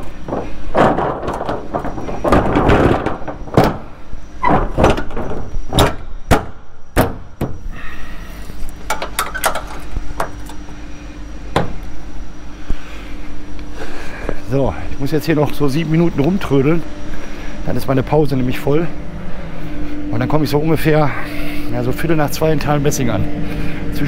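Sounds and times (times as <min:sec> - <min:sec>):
metal plate rustling handling: 0:00.0 - 0:06.0
metallic knocks against trailer: 0:00.0 - 0:07.7, 0:11.5 - 0:11.8
faint steady hum: 0:00.0 - 0:24.0.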